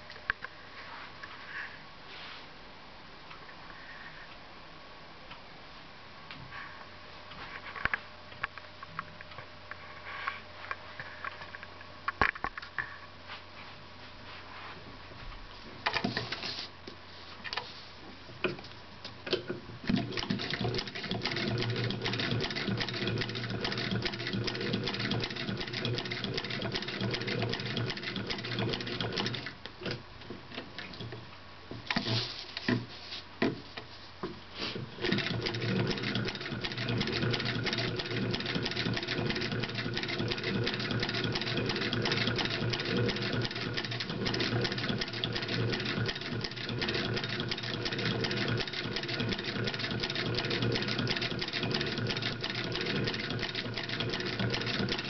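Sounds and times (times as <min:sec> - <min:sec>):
sewing machine knocks and clicks: 0:19.3 - 0:30.0, 0:35.0 - 0:55.0
sewing machine clatter: 0:19.9 - 0:30.0, 0:35.0 - 0:55.0.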